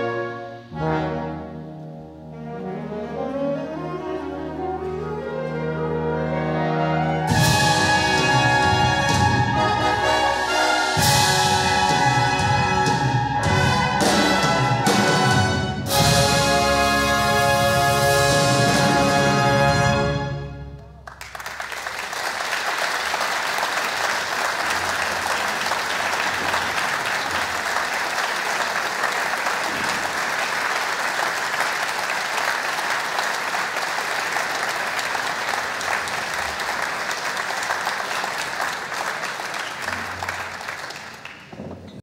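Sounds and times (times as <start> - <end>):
large audience applauding: 21.0 - 42.0.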